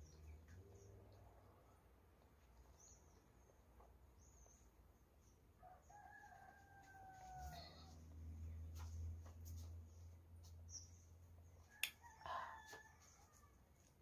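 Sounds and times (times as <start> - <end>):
faint rooster crow: 5.5 - 8.4, 11.6 - 14.0.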